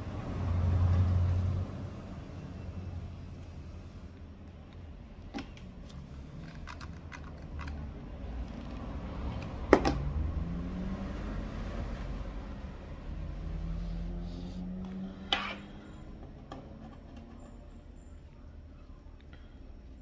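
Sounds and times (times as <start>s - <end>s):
low steady hum: 11.7s - 20.0s.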